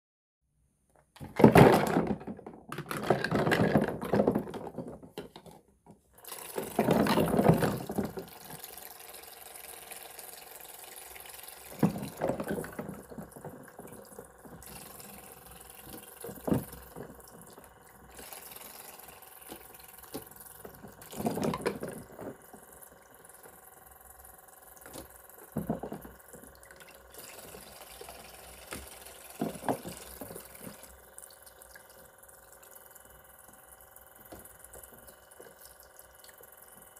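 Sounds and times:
plastic clatter: 1.0s - 8.3s, 11.7s - 14.7s, 19.5s - 22.6s, 24.9s - 26.5s, 28.7s - 30.9s
small electric pump humming: 6.1s - 36.9s
splashes and clunks of toy fruit: 6.2s - 9.4s, 10.4s - 23.2s, 24.8s - 31.5s
water trickling into basin: 6.2s - 36.9s.

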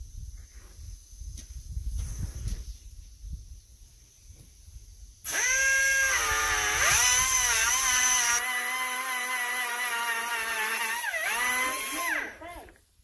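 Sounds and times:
grinder cutting steel chain: 5.3s - 12.6s.

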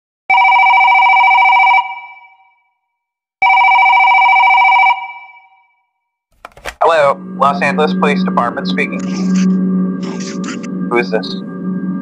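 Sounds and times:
telephone ringing: 0.3s - 2.3s, 3.4s - 5.6s.

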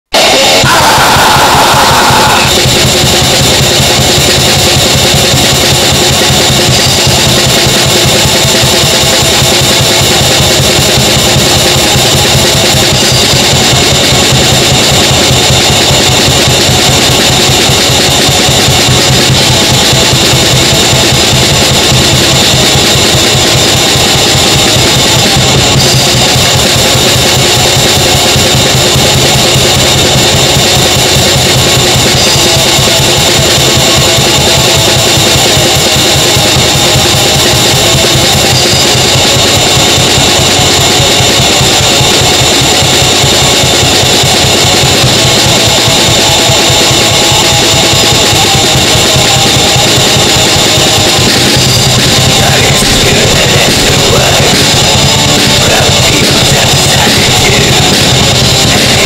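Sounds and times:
high tone: 0.1s - 3.0s
black metal music: 0.2s - 59.0s.

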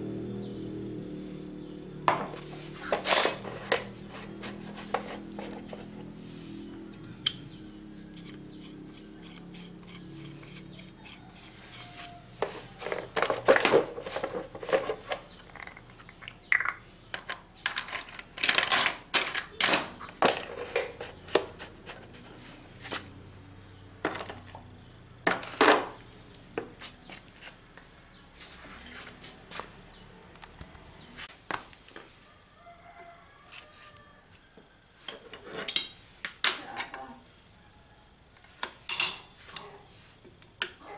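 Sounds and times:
metal tools clattering: 2.1s - 5.6s, 12.4s - 21.5s, 24.0s - 24.6s, 25.3s - 26.0s, 35.1s - 37.0s, 38.9s - 39.7s.

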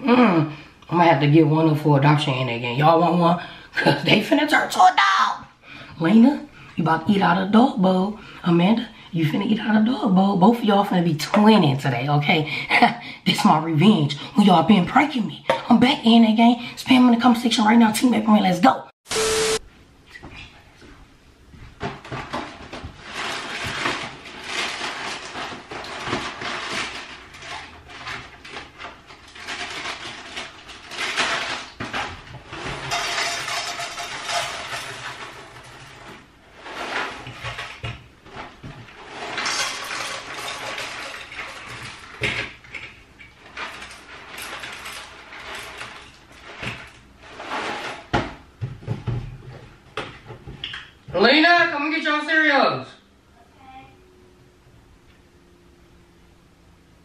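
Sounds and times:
packaging rustling: 21.9s - 48.1s
cereal rattling into metal bowls: 22.0s - 48.1s.

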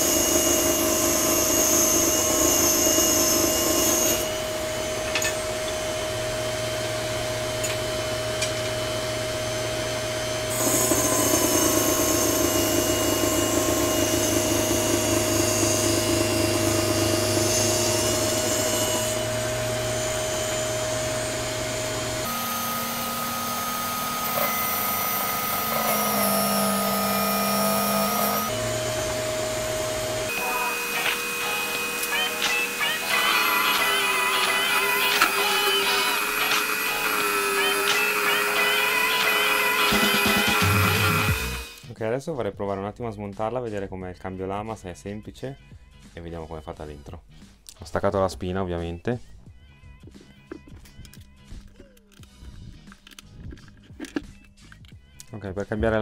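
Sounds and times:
table saw cutting wood: 0.0s - 41.9s.

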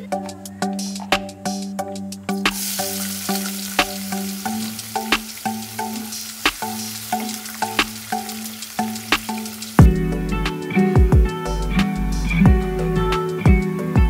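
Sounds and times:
onions sizzling in hot oil: 2.5s - 9.8s.

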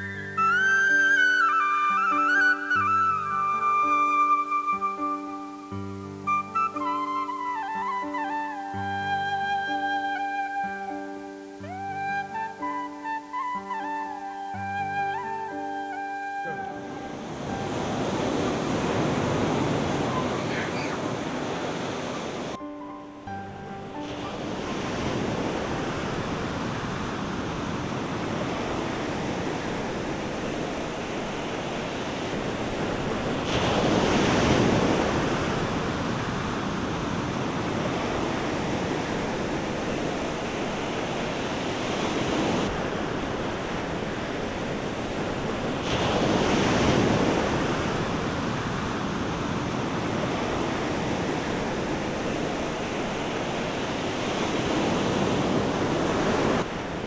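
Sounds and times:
waves breaking on rocks: 24.0s - 57.0s.

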